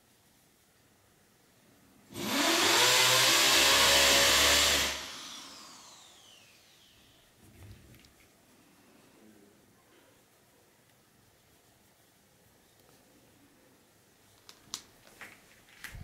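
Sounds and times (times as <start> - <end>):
electric drill drilling into wall: 2.1 - 7.0.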